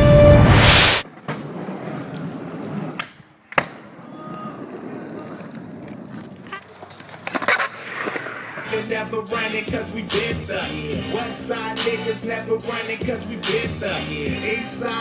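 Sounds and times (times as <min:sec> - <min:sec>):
loud whoosh: 0:00.0 - 0:01.0
skateboard wheels rolling on concrete: 0:00.9 - 0:15.0
skateboard hitting surface: 0:01.0 - 0:08.8.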